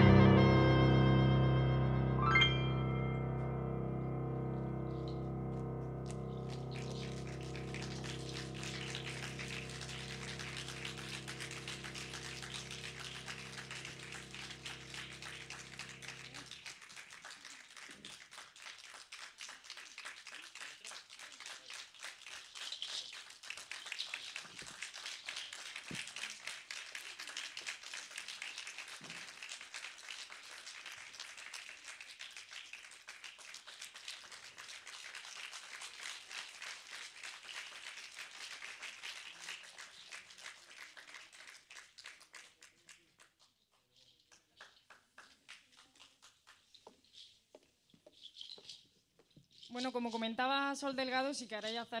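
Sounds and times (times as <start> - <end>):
held musical note: 0.0 - 16.3
audience applauding: 6.0 - 43.5.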